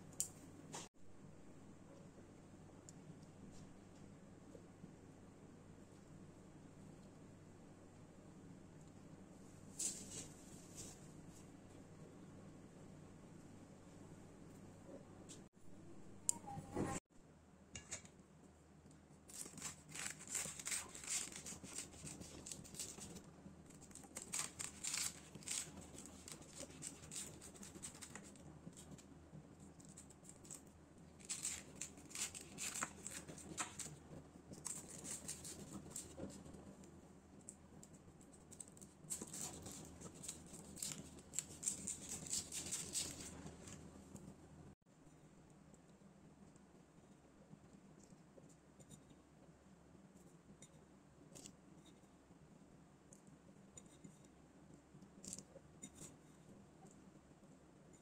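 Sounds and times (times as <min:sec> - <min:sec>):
knife crunching through pastry: 0:19.3 - 0:28.9, 0:29.8 - 0:36.6, 0:37.8 - 0:43.8.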